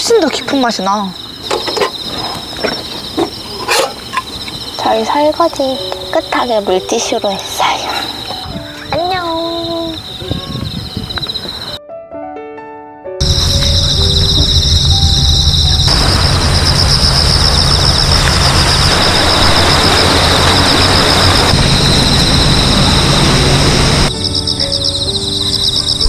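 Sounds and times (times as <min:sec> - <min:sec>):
crickets trilling: 0:00.0 - 0:11.8, 0:13.2 - 0:26.0
loud rushing noise: 0:13.2 - 0:24.1.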